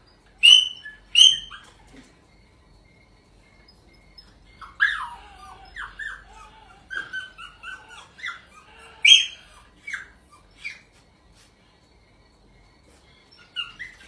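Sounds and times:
small dog whining and yelping: 0.4s - 2.0s, 4.0s - 11.1s, 13.3s - 14.0s.

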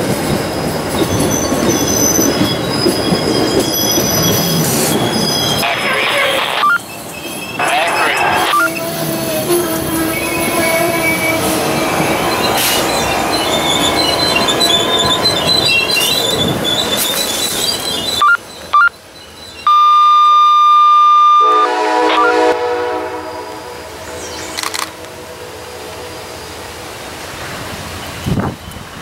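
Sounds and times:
train cars rolling past: 0.0s - 19.8s
wheels squealing on rail: 0.5s - 25.0s
train horn: 8.8s - 11.6s, 20.8s - 24.3s.

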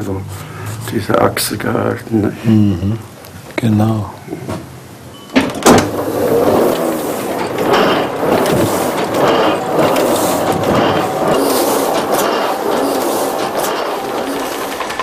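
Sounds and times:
printing press clacks: 5.3s - 15.0s
printing press mechanical clatter: 5.3s - 15.0s.

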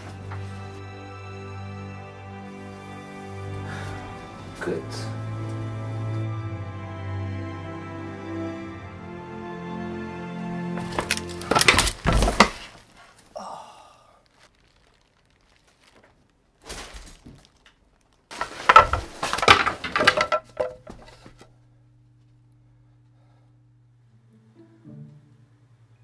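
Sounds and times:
person and chair crashing to floor: 10.8s - 12.8s, 18.3s - 21.4s
things knocking and breaking: 10.8s - 12.8s, 18.3s - 21.4s
low hum: 20.4s - 26.0s.

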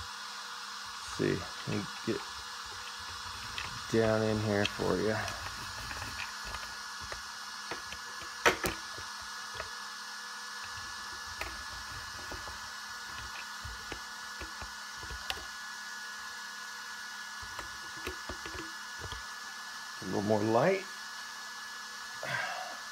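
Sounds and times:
cooling fans whining and humming: 0.0s - 22.9s
sharp clicks and taps: 17.4s - 19.2s.

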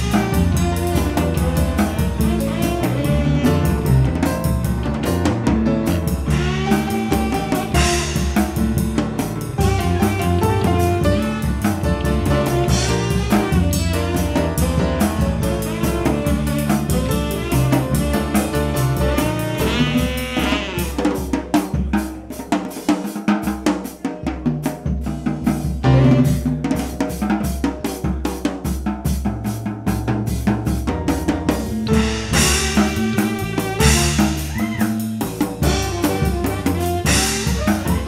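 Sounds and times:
tenor saxophone: 0.0s - 4.5s, 5.9s - 8.8s, 9.4s - 21.3s, 31.8s - 38.0s
bass: 0.0s - 38.0s
drum kit groove: 0.0s - 38.0s
piano: 0.0s - 38.0s.

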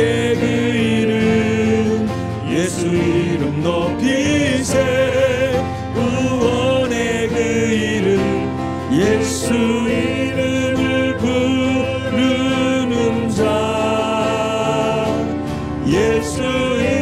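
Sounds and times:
instrumental accompaniment: 0.0s - 17.0s.

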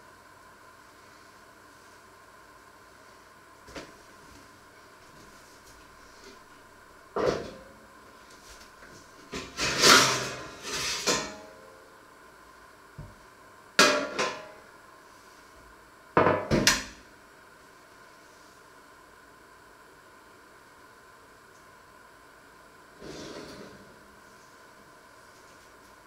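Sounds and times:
metal baking tray clattering: 9.4s - 11.4s.

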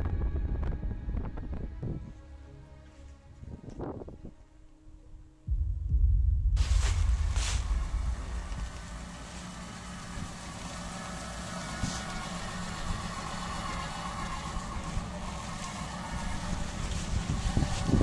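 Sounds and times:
vehicle engine running: 5.5s - 18.0s.

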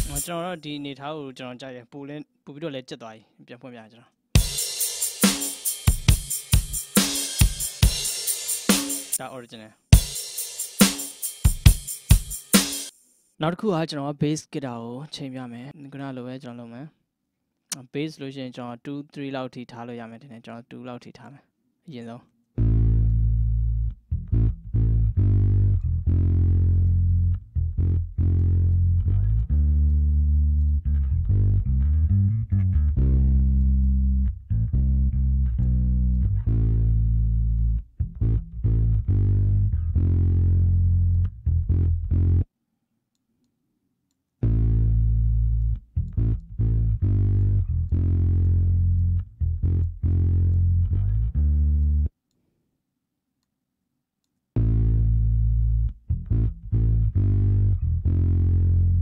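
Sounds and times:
plucked bass guitar notes: 0.0s - 0.4s, 22.6s - 42.5s, 44.4s - 52.1s, 54.6s - 59.0s.

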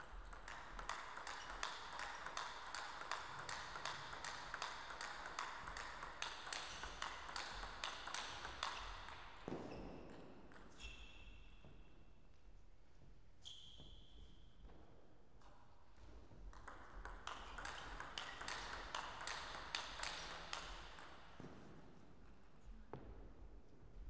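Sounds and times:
table tennis ball clicks: 16.6s - 21.2s.

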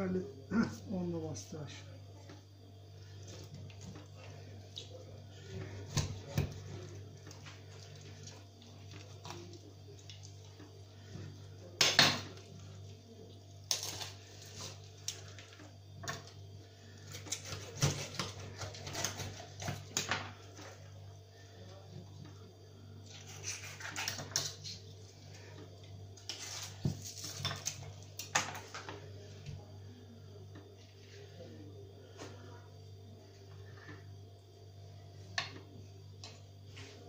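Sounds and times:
knife cutting and scraping fish: 13.7s - 15.2s, 17.0s - 20.0s, 23.0s - 24.9s, 26.2s - 27.9s.

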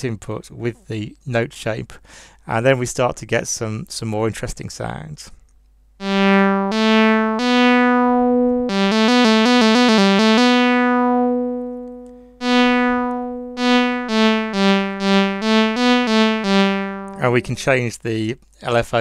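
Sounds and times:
analogue synthesizer notes: 6.0s - 17.9s.

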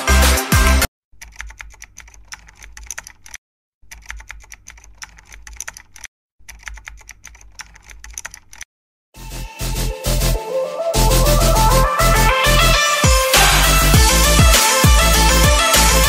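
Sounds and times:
keyboard typing: 1.2s - 8.7s.

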